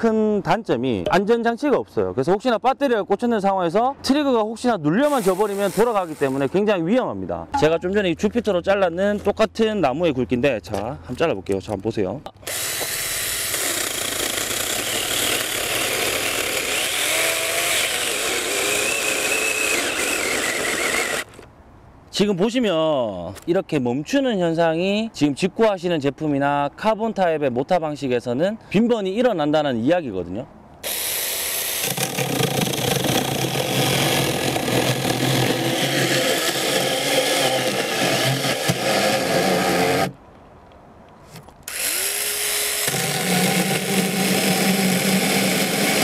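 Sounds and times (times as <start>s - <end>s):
chainsaw cutting through branch: 12.5s - 21.4s, 30.8s - 40.2s, 41.7s - 46.0s.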